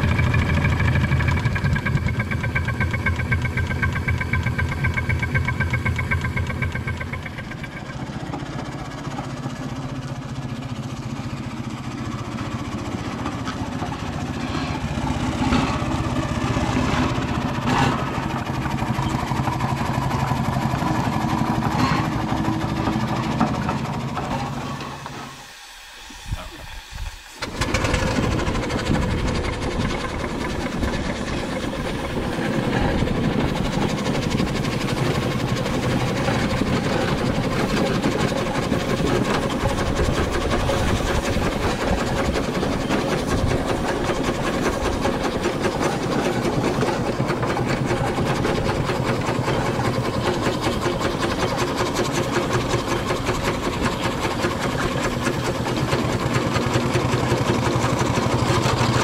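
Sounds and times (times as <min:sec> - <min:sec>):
mechanical clatter: 0:00.0 - 0:09.7, 0:27.1 - 0:59.0
steam engine running: 0:00.0 - 0:59.0.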